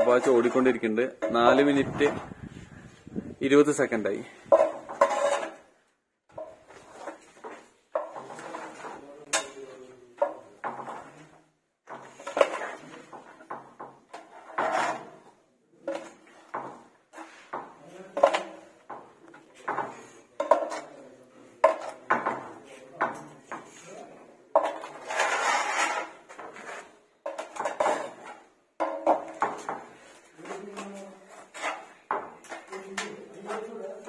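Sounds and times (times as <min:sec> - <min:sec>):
putty blade scraping a wall: 0:04.5 - 0:05.7, 0:06.4 - 0:09.5, 0:11.9 - 0:17.5, 0:24.6 - 0:34.0.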